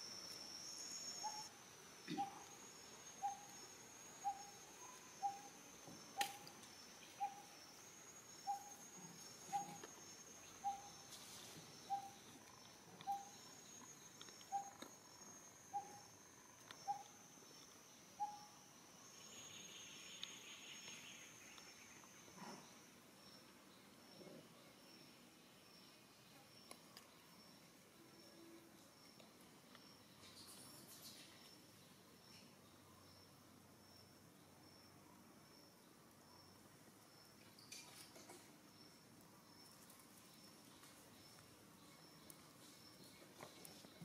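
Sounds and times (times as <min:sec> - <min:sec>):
high-pitched insect drone: 0:00.0 - 0:21.4.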